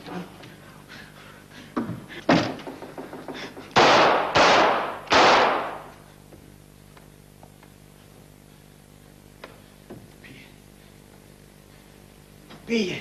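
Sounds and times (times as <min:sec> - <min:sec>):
loud sharp bangs: 0:03.8 - 0:05.9.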